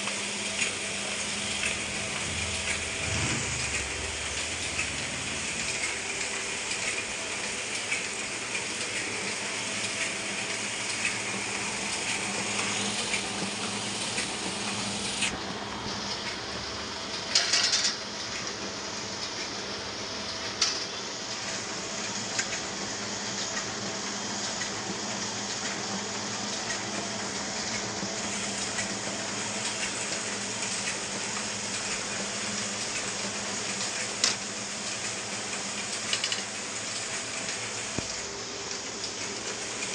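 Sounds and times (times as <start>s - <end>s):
printing press whirring: 0.0s - 39.9s
loud clatter: 1.5s - 6.3s.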